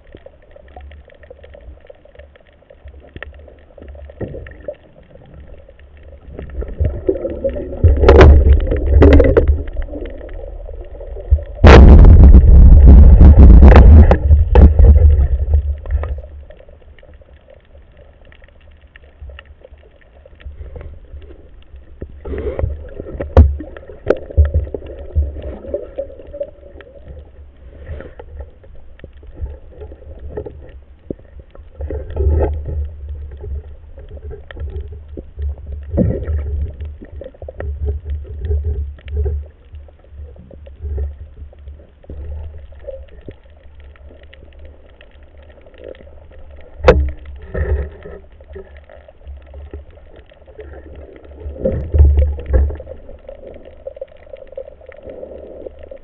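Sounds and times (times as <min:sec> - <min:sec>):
faint scattered clicks: 0:00.0 - 0:06.9, 0:15.2 - 0:36.0
underwater low rumble: 0:00.0 - 0:56.0
water thumping against camera housing: 0:07.9 - 0:09.7, 0:11.6 - 0:16.2.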